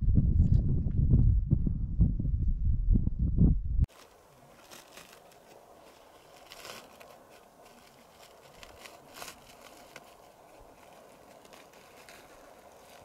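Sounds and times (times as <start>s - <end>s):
loud low rumble: 0.0s - 3.9s
faint outdoor hiss: 3.9s - 13.0s
soft crackles: 3.9s - 13.0s.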